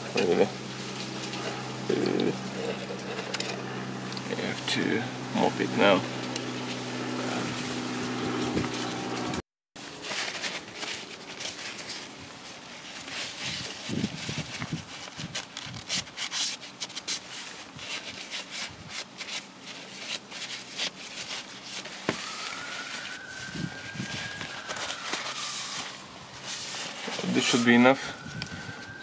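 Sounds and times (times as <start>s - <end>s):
paper towel rubbing on plastic: 0.0s - 9.3s, 10.0s - 28.0s
steady hum: 0.0s - 9.4s.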